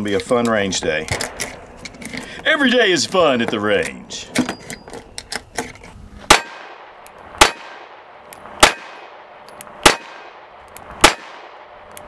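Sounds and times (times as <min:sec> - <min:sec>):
pistol shots with echo: 0:06.3 - 0:11.8.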